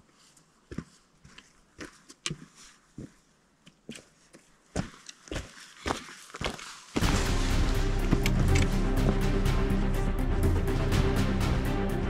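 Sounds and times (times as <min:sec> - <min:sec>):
footsteps on a trail: 0:00.0 - 0:09.3.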